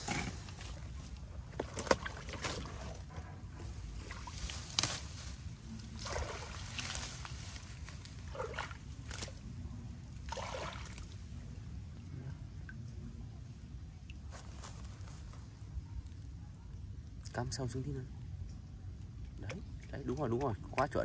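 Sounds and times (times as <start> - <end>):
water sloshing and splashing: 0.0 - 12.0.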